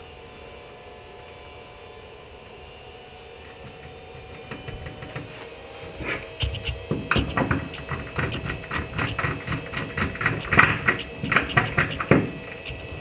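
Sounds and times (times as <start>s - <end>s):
louder knocks: 6.1s - 13.0s.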